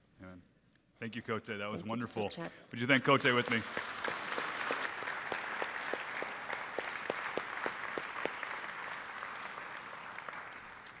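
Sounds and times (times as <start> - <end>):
congregation applauding: 2.8 - 11.0.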